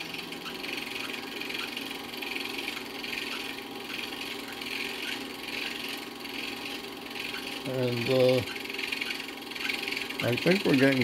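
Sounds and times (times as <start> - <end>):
film projector whirring and ticking: 0.0 - 11.0.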